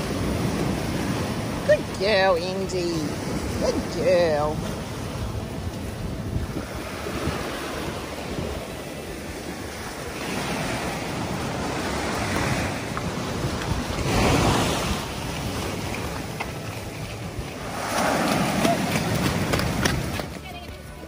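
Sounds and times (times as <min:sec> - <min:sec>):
small waves breaking on sand: 0:00.0 - 0:21.0
wind buffeting microphone: 0:00.0 - 0:21.0.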